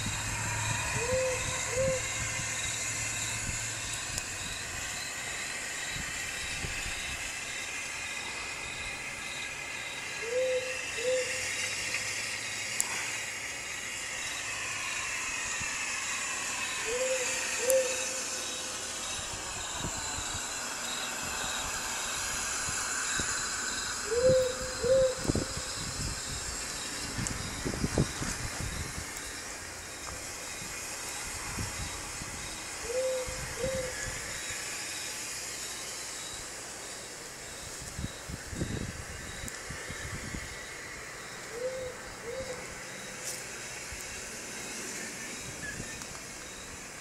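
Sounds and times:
owl hooting: 0:00.0 - 0:13.1, 0:14.2 - 0:19.2, 0:23.0 - 0:27.5, 0:31.8 - 0:35.0, 0:39.3 - 0:43.4
steady hiss: 0:00.0 - 0:47.0.

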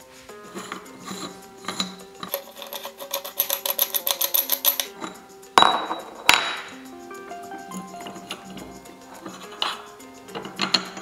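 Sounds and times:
background music: 0:00.0 - 0:11.0
loud metallic knocks: 0:05.6 - 0:06.8.

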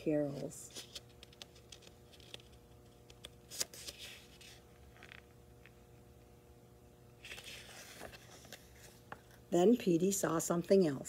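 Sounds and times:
low room hum: 0:00.0 - 0:11.0
paper rustling: 0:00.2 - 0:05.2, 0:07.2 - 0:09.4
small clicks of book handling: 0:00.7 - 0:05.8, 0:07.2 - 0:09.4.

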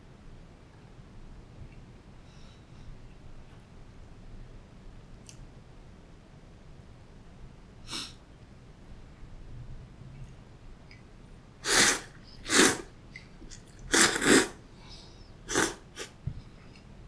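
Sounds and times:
person slurping noodles: 0:11.6 - 0:12.9, 0:13.6 - 0:14.6, 0:15.5 - 0:16.2.

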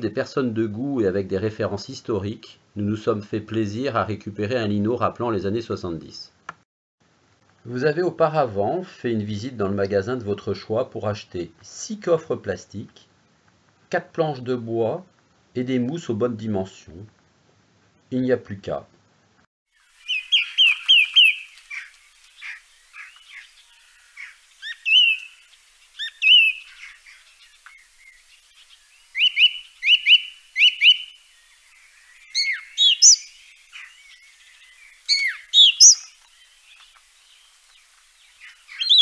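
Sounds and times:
songbirds singing: 0:19.9 - 0:39.0.

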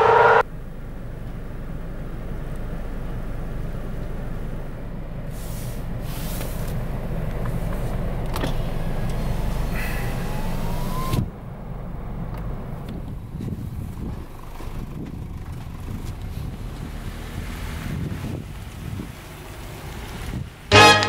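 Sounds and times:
engine and road rumble: 0:00.0 - 0:21.0
hiss: 0:05.2 - 0:06.9, 0:08.6 - 0:11.2.

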